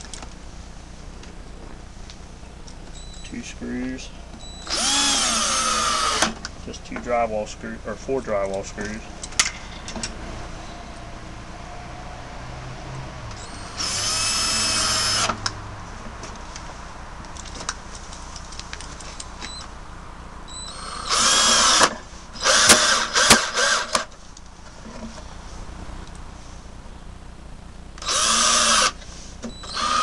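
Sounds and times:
cordless drill whining: 4.4s - 6.4s, 13.4s - 15.4s, 20.5s - 24.1s, 28.0s - 30.0s.

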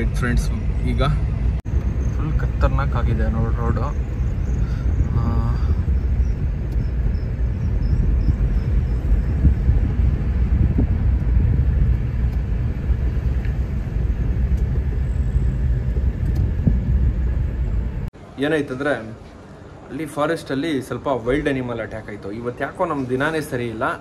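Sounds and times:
car engine and road noise: 0.0s - 18.4s.

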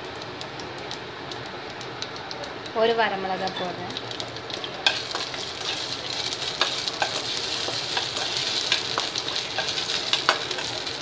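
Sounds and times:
seeds sizzling in hot oil: 0.0s - 11.0s
spatula stirring in pan: 4.5s - 11.0s.

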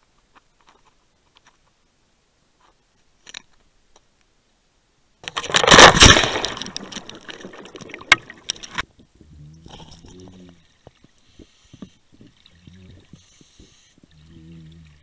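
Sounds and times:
underwater clicks: 5.2s - 8.8s
diver splashing into water: 5.4s - 8.8s
fizzing rush of bubbles: 5.4s - 8.8s.

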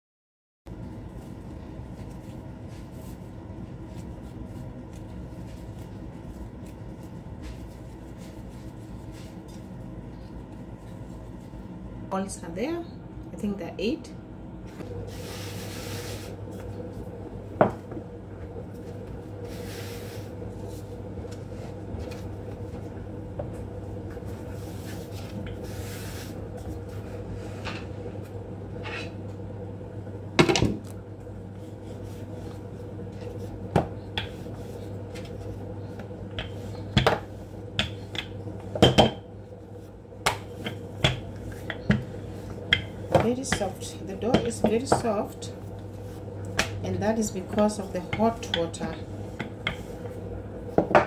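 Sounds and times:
steady low hum: 0.7s - 51.0s
soft rubbing: 1.9s - 9.8s.

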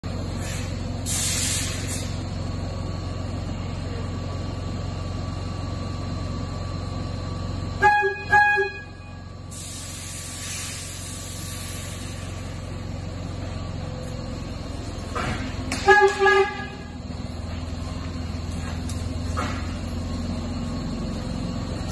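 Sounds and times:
subway car hum and hiss: 0.0s - 21.9s
subway car horn toots: 7.7s - 9.3s, 15.1s - 17.2s.

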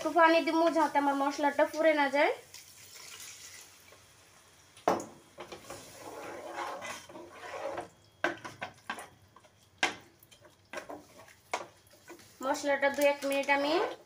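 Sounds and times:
metal spoon scraping a pot: 5.5s - 8.0s.

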